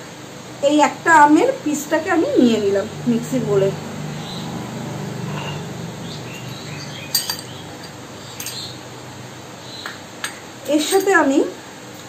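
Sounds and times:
spoon scraping in jar: 5.3s - 5.7s
metal spoon clinking on glass: 7.1s - 8.8s.

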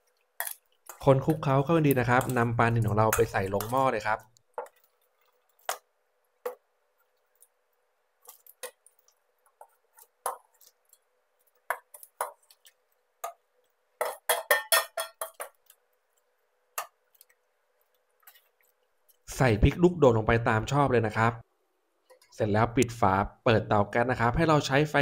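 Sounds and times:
metal spoon clinking on bowl: 14.0s - 15.6s.

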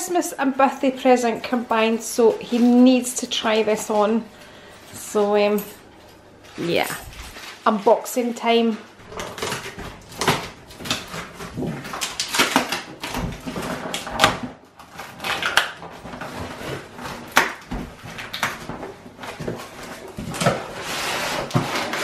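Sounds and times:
packing tape ripping: 9.0s - 18.8s.

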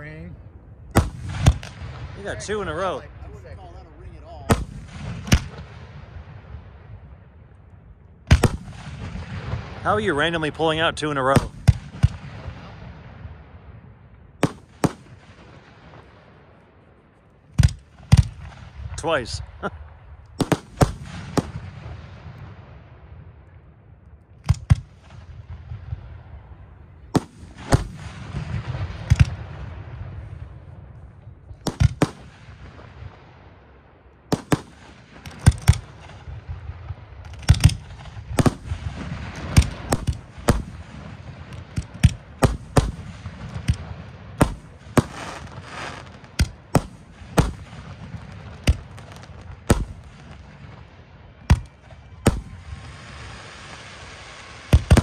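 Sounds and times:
firework shells bursting: 14.4s - 16.1s, 17.4s - 22.6s, 27.0s - 30.2s, 31.5s - 33.1s, 34.3s - 55.0s.

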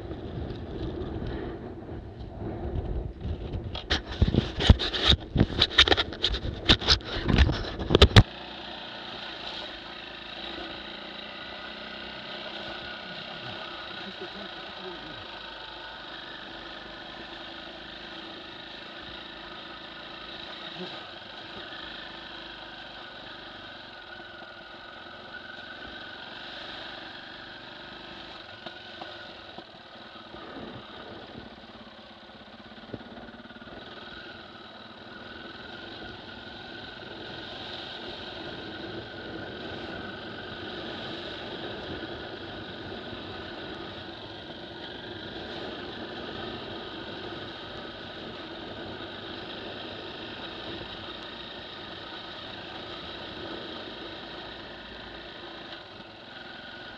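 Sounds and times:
motorcycle engine running: 0.0s - 56.9s.

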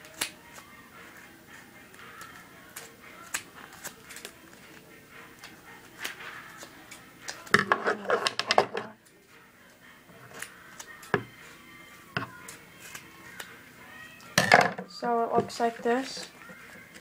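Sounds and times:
scissors snipping paper: 1.9s - 4.4s, 12.4s - 13.5s.

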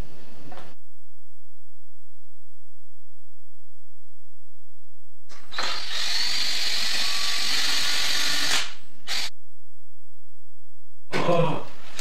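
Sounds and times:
cordless drill running: 5.3s - 9.3s.

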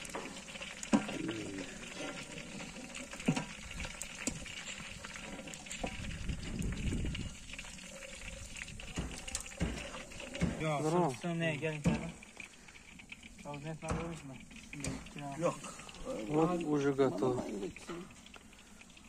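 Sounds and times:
frying oil bubbling: 0.0s - 19.0s.

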